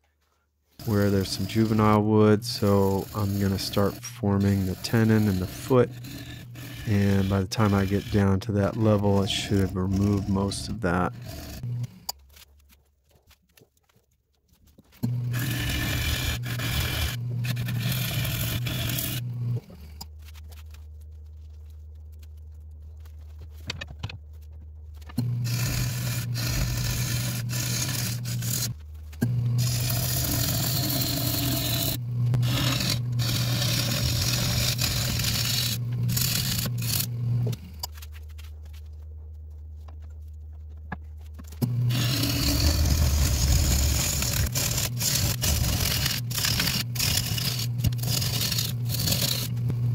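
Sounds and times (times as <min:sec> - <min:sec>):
tool scraping wood on lathe: 0:00.2 - 0:13.6, 0:14.6 - 0:20.8, 0:25.0 - 0:38.8, 0:39.8 - 0:49.9
lathe motor hum: 0:00.8 - 0:12.0, 0:15.0 - 0:19.7, 0:25.2 - 0:37.7, 0:41.6 - 0:49.9.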